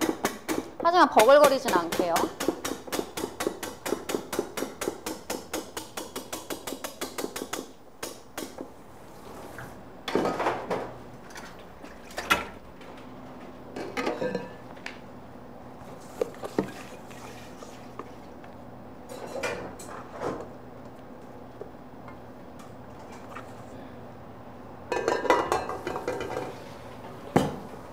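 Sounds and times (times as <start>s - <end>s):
bowls and utensils clinking: 13.8s - 14.6s, 24.9s - 26.6s.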